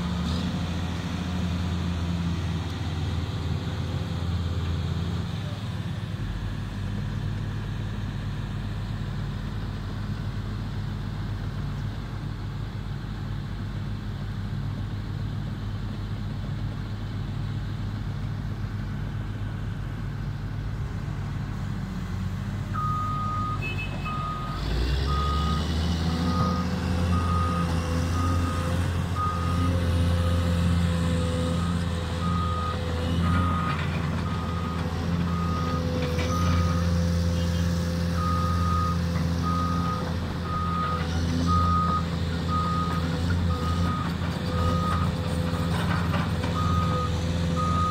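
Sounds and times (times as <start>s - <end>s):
travel alarm beeping: 22.8s - 25.6s
excavator diesel engine idling: 31.6s - 47.9s.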